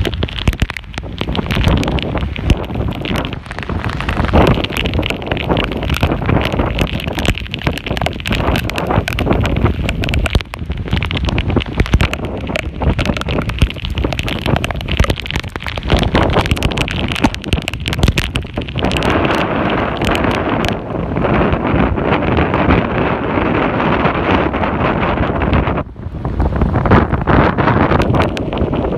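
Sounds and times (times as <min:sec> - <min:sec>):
water churning and splashing: 0:00.0 - 0:23.1
wind buffeting microphone: 0:00.0 - 0:28.9.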